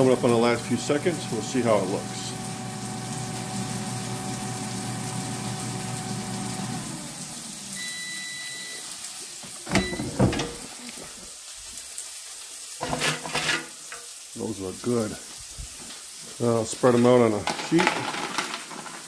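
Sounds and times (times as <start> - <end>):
air fryer fan humming: 0.0 - 8.8, 9.7 - 10.8
long beep: 7.8 - 8.8, 9.7 - 10.2
basket clunking: 9.6 - 10.7.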